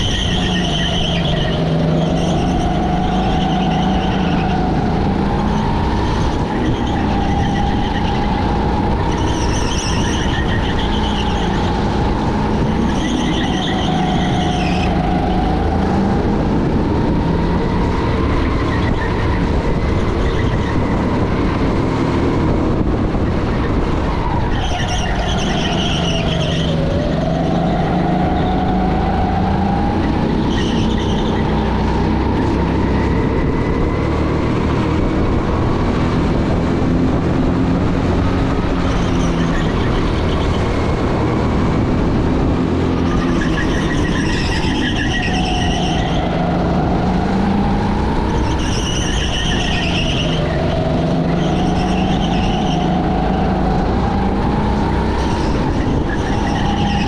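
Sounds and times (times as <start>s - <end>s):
racing car engine: 0.0s - 57.0s.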